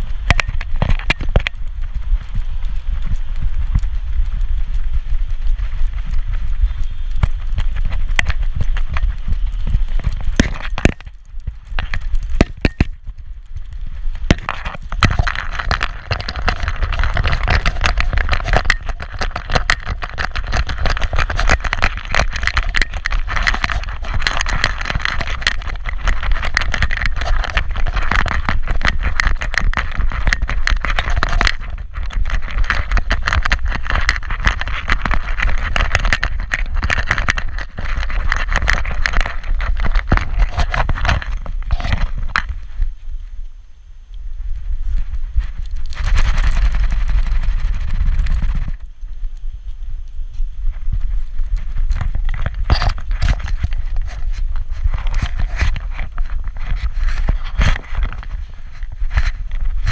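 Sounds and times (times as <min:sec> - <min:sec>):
camera harness rattling: 0:00.0 - 0:01.7, 0:02.7 - 0:42.5, 0:45.4 - 0:48.9, 0:51.2 - 0:59.9.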